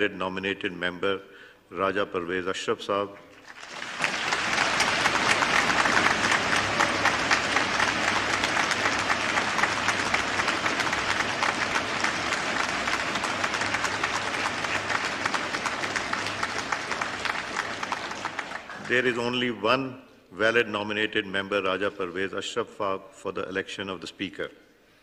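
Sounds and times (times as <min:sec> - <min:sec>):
crowd applauding: 0:03.3 - 0:19.4.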